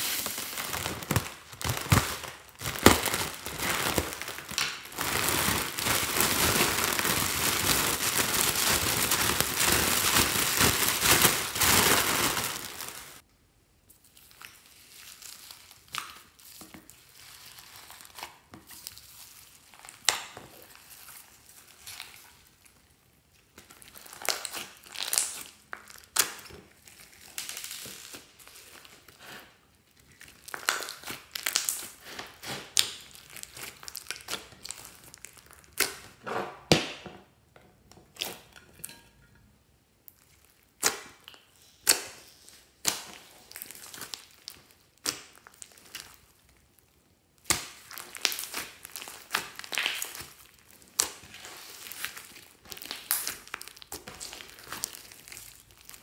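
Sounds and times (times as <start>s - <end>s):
hands squishing beaded slime: 0.0s - 13.2s, 23.4s - 36.2s, 40.1s - 46.7s, 47.4s - 56.0s.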